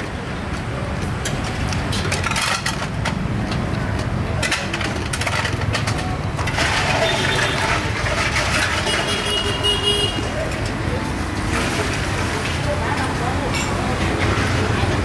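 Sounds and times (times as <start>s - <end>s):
passing traffic rumble: 0.0s - 15.0s
cutlery and dishes clinking: 1.2s - 3.6s, 11.5s - 14.7s.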